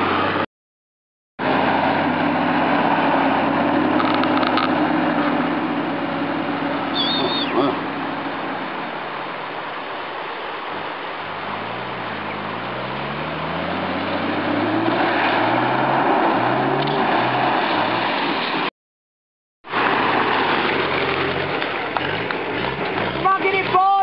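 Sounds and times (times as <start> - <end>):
off-road engine revving: 1.4 - 8.5, 11.2 - 18.4, 19.7 - 24.0
water splashing: 1.4 - 18.7, 19.7 - 24.0.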